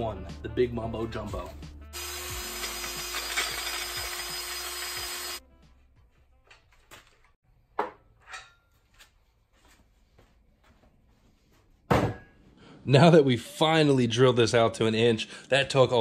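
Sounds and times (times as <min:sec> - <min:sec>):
power drill boring metal: 0:02.0 - 0:05.4.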